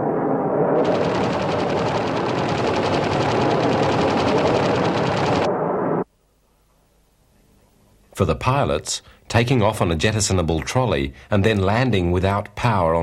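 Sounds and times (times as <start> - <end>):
low rush: 0.0 - 6.1
machine-gun fire: 0.8 - 5.5.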